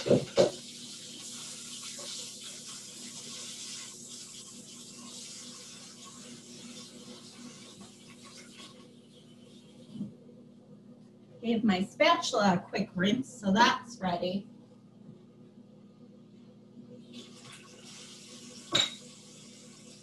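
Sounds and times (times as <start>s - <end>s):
tap water running into sink: 0.0s - 8.9s, 17.1s - 20.0s
microwave humming: 0.0s - 20.0s.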